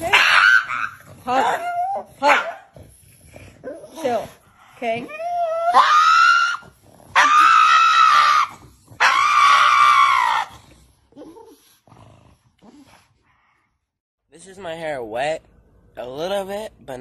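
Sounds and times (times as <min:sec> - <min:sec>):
dog screaming high-pitched cries: 0:00.0 - 0:02.7, 0:05.0 - 0:10.5.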